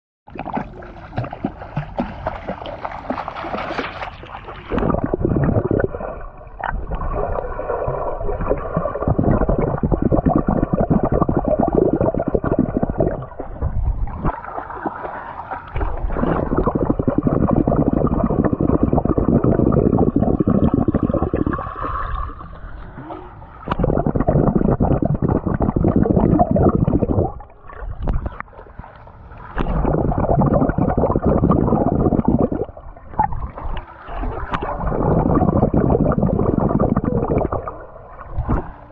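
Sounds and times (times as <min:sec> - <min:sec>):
swimmer exhaling bubbles: 0:00.3 - 0:28.4, 0:29.6 - 0:38.9
underwater water rushing and bubbling: 0:00.3 - 0:38.9.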